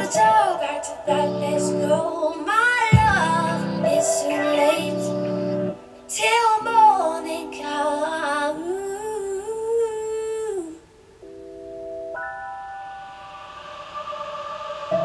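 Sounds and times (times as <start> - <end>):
sustained musical accompaniment: 0.0 - 8.5
person singing long note: 0.0 - 10.8.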